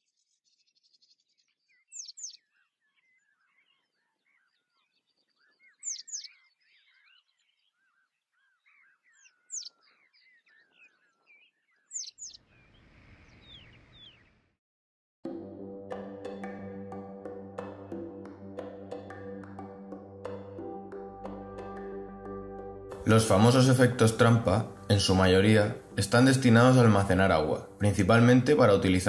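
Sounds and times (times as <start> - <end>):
birds chirping and warbling: 0.0 - 14.6.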